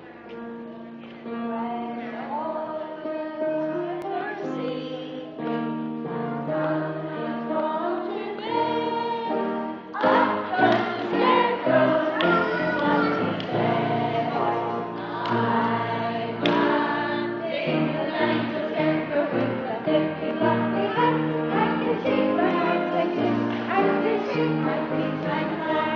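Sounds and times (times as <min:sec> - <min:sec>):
musical accompaniment: 0:03.2 - 0:25.9
group of voices singing: 0:06.2 - 0:25.9.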